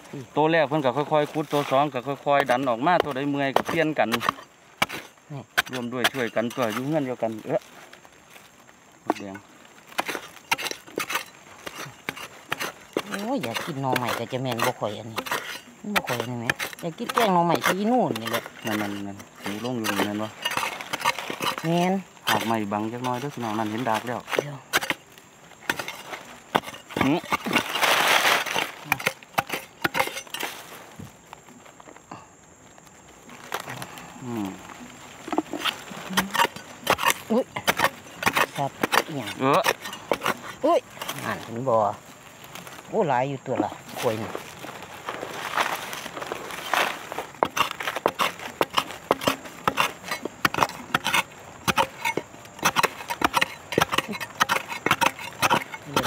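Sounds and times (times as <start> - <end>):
digging tool scraping soil: 0.0 - 31.1, 33.4 - 56.0
digging tool chopping hard soil: 0.9 - 7.2, 9.1 - 25.0, 25.6 - 30.6, 35.3 - 41.4, 46.6 - 56.0.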